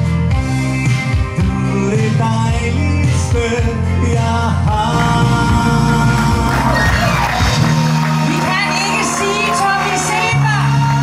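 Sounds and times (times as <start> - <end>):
backing music: 0.0 - 11.0
man singing into a microphone: 0.8 - 7.2.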